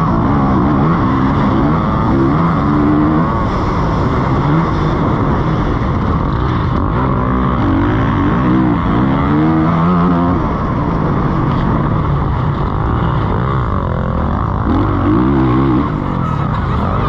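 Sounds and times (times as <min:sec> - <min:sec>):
motocross bike engine revving: 0:00.0 - 0:17.0.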